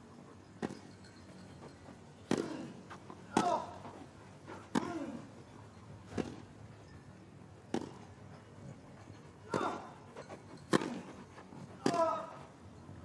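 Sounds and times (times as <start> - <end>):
tennis ball struck by racquet: 2.2 - 2.5, 3.3 - 3.7, 4.7 - 5.0, 7.7 - 8.0.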